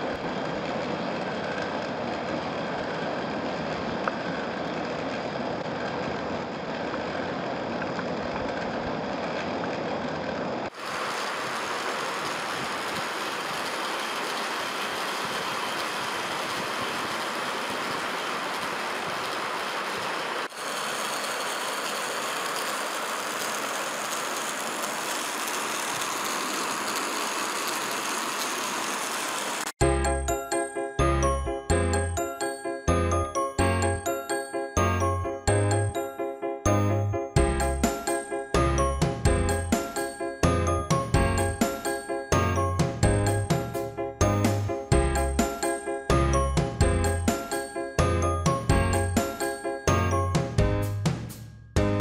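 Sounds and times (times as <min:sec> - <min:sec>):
small electric motor running: 0:10.7 - 0:29.7.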